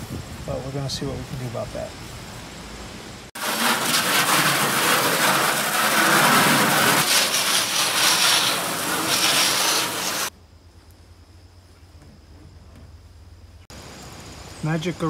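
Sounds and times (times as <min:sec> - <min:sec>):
hose water spraying on metal: 0:03.3 - 0:10.3.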